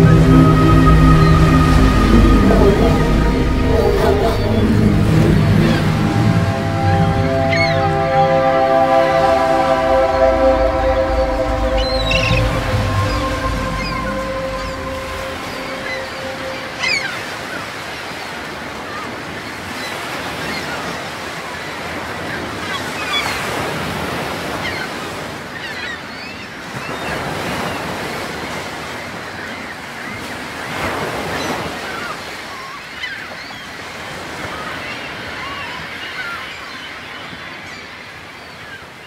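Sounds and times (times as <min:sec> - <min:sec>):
gulls calling: 0:00.0 - 0:17.9
music track: 0:00.0 - 0:17.9.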